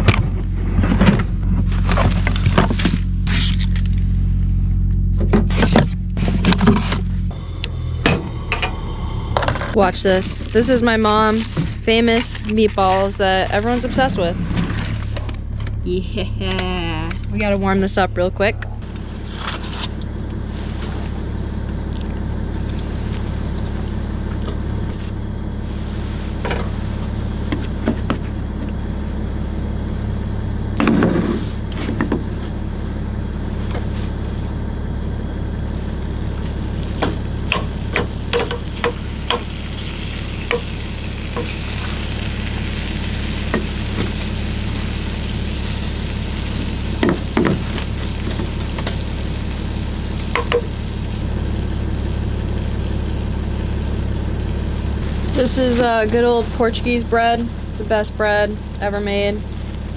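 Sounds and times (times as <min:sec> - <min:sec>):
steady low hum: 0:00.0 - 0:59.9
loud thump: 0:05.2 - 0:09.8
meatballs sizzling in a pan: 0:36.5 - 0:51.1.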